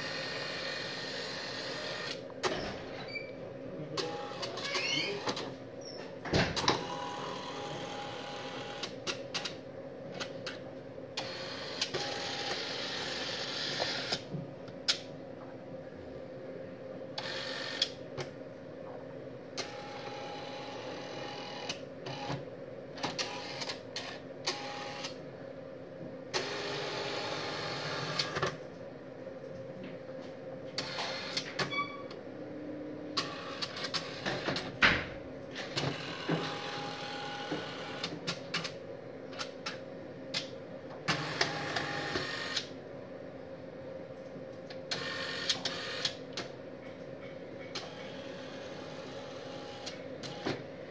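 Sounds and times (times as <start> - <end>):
steady hum: 0.0 - 47.7
mechanical clicks and clunks: 44.7 - 48.2.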